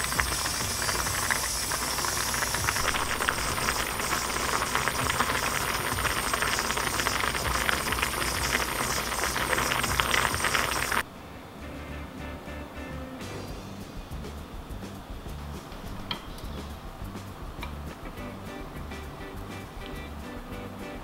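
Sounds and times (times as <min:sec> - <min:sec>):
stew boiling in metal pot: 0:00.0 - 0:11.1.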